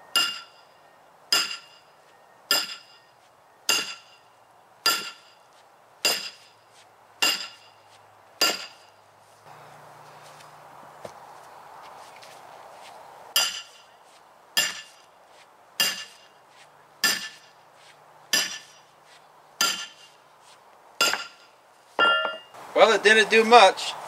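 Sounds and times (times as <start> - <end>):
sledgehammer striking steel wedges: 0.1 - 0.7, 1.3 - 1.9, 2.5 - 3.1, 3.7 - 5.4, 6.0 - 6.6, 7.2 - 7.8, 8.4 - 9.0, 13.3 - 13.9, 14.6 - 15.1, 15.8 - 16.4, 17.0 - 17.6, 18.3 - 18.9, 19.6 - 20.2, 21.0 - 22.6.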